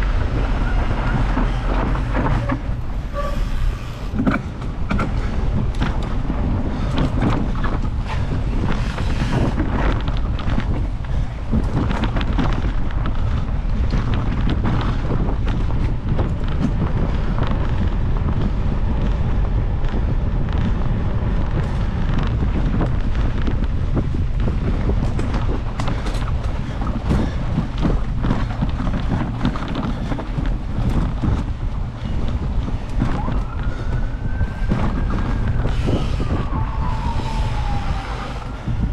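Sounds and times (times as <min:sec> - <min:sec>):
bike clicks and rattles: 0:00.0 - 0:37.3
mountain bike rumble: 0:00.0 - 0:38.9
wind noise on microphone: 0:00.0 - 0:38.9.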